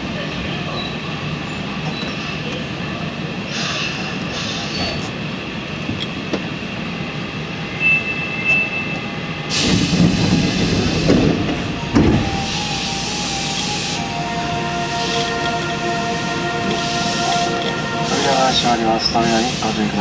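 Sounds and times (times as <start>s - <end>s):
subway train humming: 0.0s - 20.0s.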